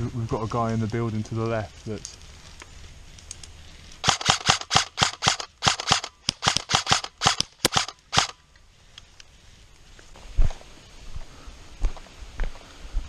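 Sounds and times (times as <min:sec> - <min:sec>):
airsoft rifle shots: 0:04.0 - 0:08.4.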